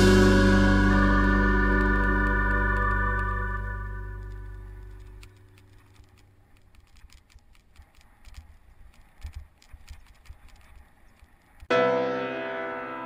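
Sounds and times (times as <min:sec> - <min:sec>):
organ music: 0:00.0 - 0:05.3
bicycle rattling over dirt track: 0:04.1 - 0:11.7.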